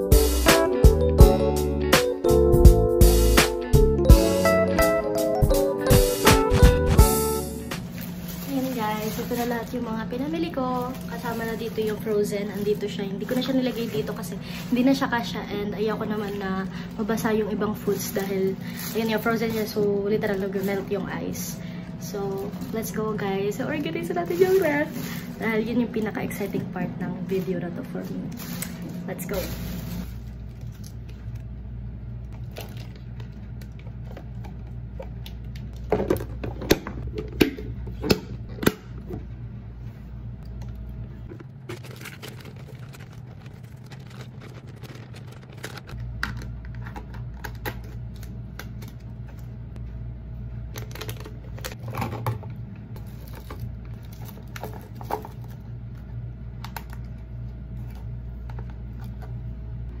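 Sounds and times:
steady low hum: 0:02.5 - 1:00.0
plastic bag rustling: 0:07.1 - 0:31.4, 0:41.2 - 0:46.1, 0:53.0 - 0:55.7
plastic containers clattering: 0:41.3 - 0:47.2.

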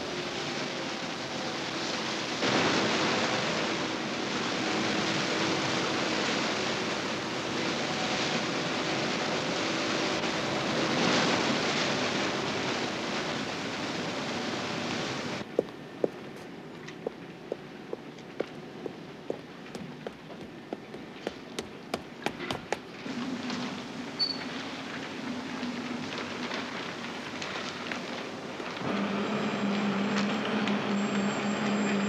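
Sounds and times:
motorboat engine and water rushing: 0:00.0 - 0:16.4.

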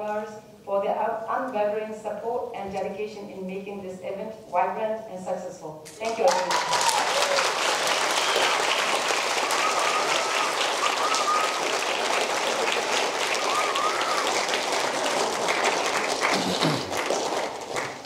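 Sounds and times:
audience applauding: 0:06.0 - 0:18.0.

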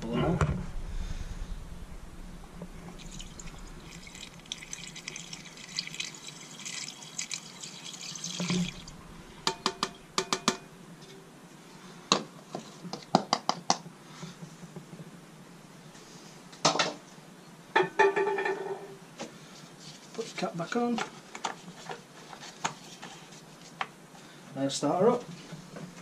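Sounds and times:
liquid gurgling through funnel: 0:02.5 - 0:10.2.

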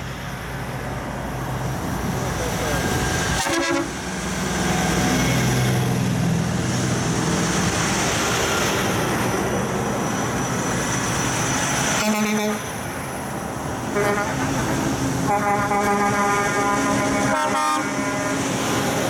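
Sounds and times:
diesel trucks driving past: 0:00.0 - 0:19.0
truck horn toot: 0:03.4 - 0:04.0, 0:12.0 - 0:12.7, 0:13.9 - 0:14.5, 0:15.2 - 0:18.6.

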